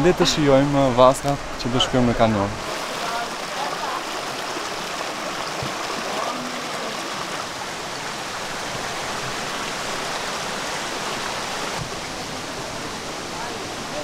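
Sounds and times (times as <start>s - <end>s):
stream water rushing: 0.0s - 14.0s.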